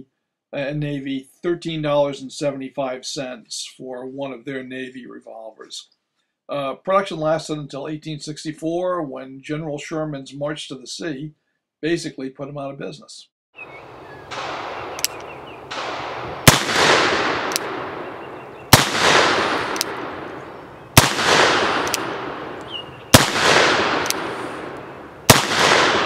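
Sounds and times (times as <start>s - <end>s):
long rolling echo: 13.6s - 26.0s
revolver shots: 14.2s - 26.0s
faint clicks: 14.3s - 15.4s, 17.4s - 17.7s, 19.7s - 20.1s, 21.8s - 22.7s, 24.0s - 24.9s.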